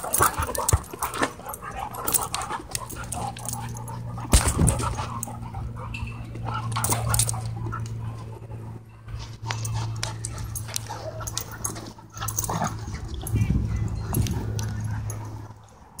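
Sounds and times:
dogs scuffling: 0:00.0 - 0:15.6
dogs whimpering and yipping: 0:00.0 - 0:16.0
steady low hum: 0:00.0 - 0:16.0.

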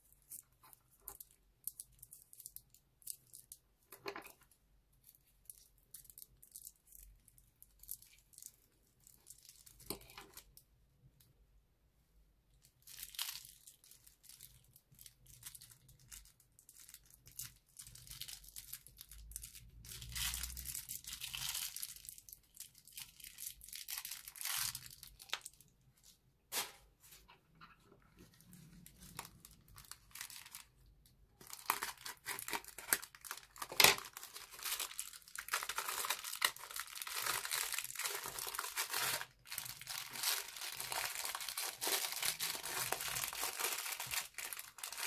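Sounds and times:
plastic piping bag crinkling: 0:12.5 - 0:26.3, 0:28.0 - 0:45.0.

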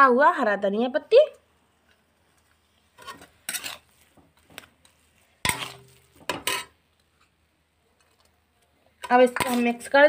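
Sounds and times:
spatula scraping metal pan: 0:02.9 - 0:04.1, 0:04.8 - 0:06.8.

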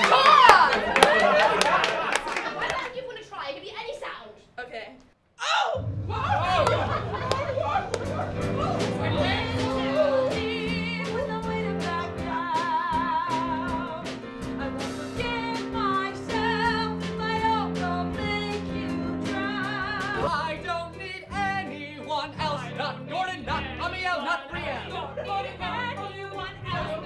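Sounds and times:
sustained accompaniment chords: 0:05.8 - 0:11.4.

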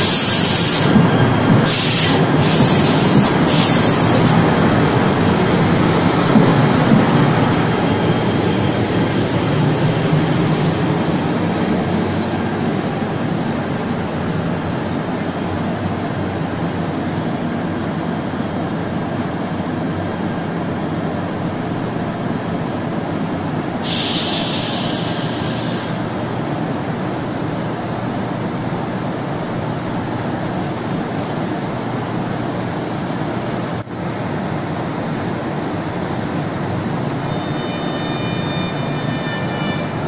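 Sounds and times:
electric train droning: 0:00.0 - 0:21.6, 0:34.1 - 0:40.0
air hiss: 0:23.8 - 0:26.1.

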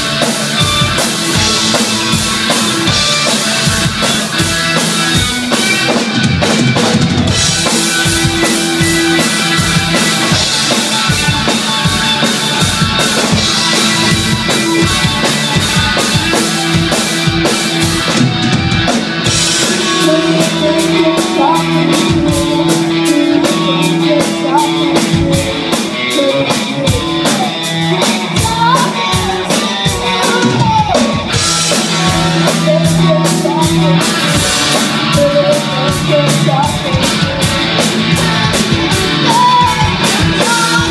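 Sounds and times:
rock band playing: 0:00.0 - 0:40.9
steady drum beat: 0:00.0 - 0:40.9
person singing: 0:19.5 - 0:40.9.

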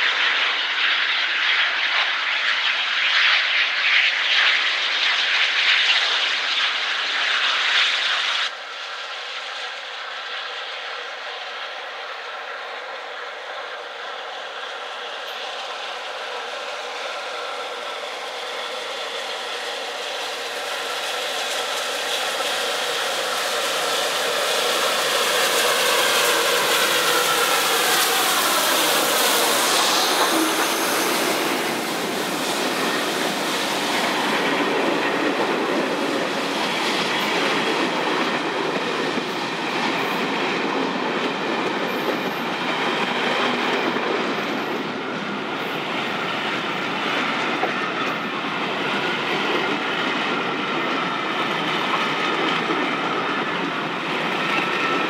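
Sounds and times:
steam locomotive passing: 0:00.0 - 0:55.0
train wheels clattering on rails: 0:13.1 - 0:55.0.

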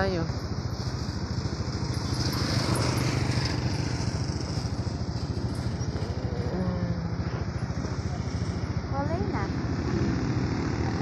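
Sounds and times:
small vehicle engine puttering: 0:00.0 - 0:11.0.

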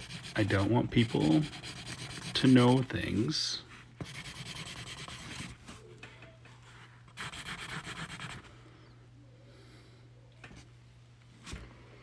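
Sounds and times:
pen scribbling rapidly: 0:00.0 - 0:02.8, 0:04.0 - 0:05.5, 0:07.2 - 0:08.5.

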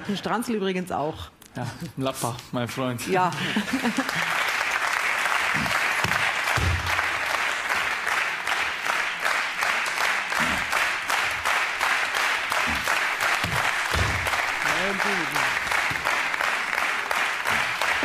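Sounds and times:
audience applauding: 0:03.6 - 0:18.0.

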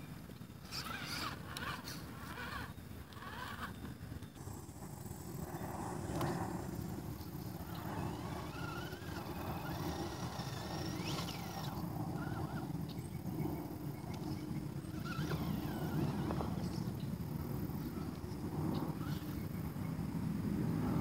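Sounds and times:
electric motor whining: 0:00.6 - 0:13.3, 0:13.9 - 0:17.0.

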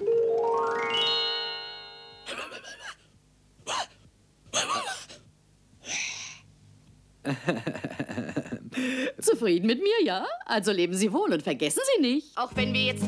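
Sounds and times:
cartoon dog strained sounds: 0:02.3 - 0:05.3.

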